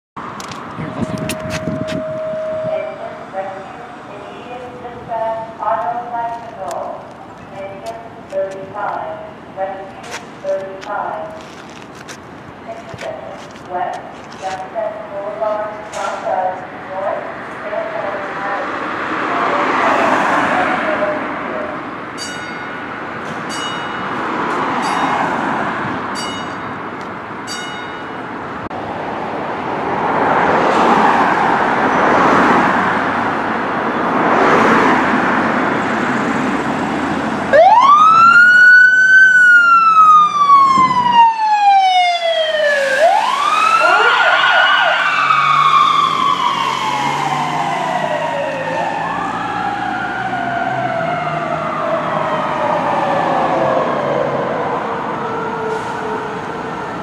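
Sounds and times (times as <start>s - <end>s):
emergency vehicle siren wailing: 0.2s - 11.5s, 33.8s - 57.0s
vehicle noise: 0.2s - 57.0s.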